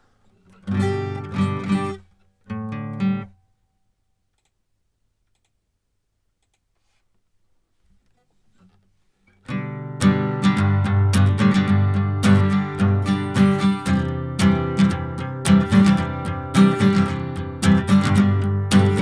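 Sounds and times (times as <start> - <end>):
guitar strumming: 0.5 - 3.4, 9.4 - 19.0.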